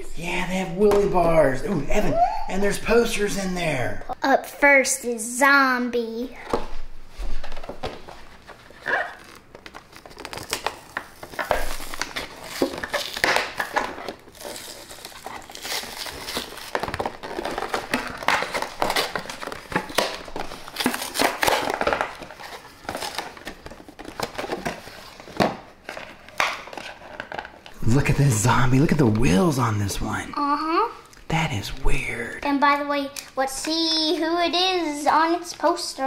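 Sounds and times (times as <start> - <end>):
plastic packaging crinkling: 7.3 - 28.9
cardboard tearing: 8.4 - 28.0.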